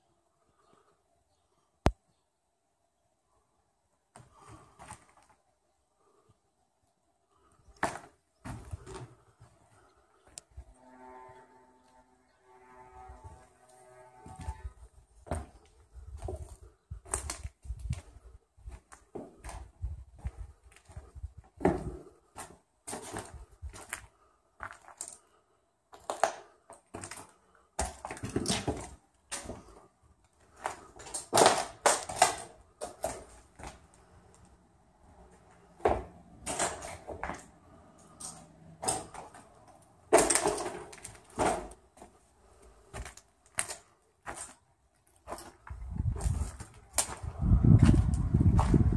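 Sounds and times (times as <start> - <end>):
footsteps crunching on debris: 7.7 - 9.9, 14.2 - 25.3, 25.9 - 34.5, 35.4 - 48.9.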